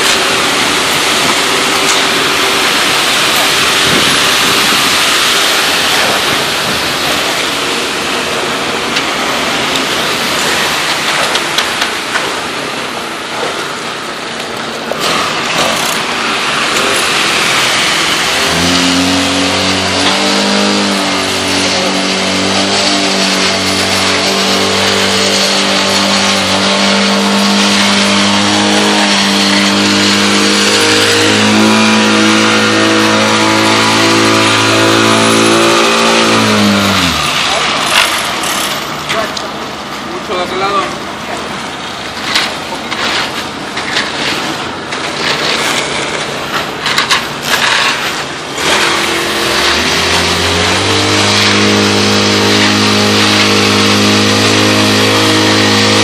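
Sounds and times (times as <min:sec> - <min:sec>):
small gasoline engine running: 0:00.0 - 0:13.6, 0:15.0 - 0:39.3, 0:45.0 - 0:56.0
wet concrete pouring down chute: 0:00.0 - 0:56.0
shovel scraping: 0:14.9 - 0:39.4, 0:42.1 - 0:56.0.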